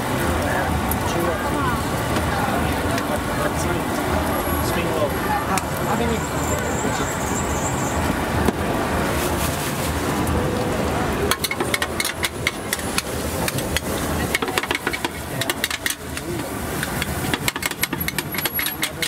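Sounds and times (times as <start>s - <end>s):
street traffic: 0.0s - 19.0s
metal spatula clacking on wok: 11.3s - 19.0s.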